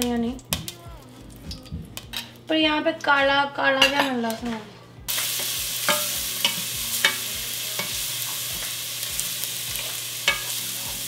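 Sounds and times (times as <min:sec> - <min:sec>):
hot oil sizzling in a pan: 0:05.1 - 0:11.0.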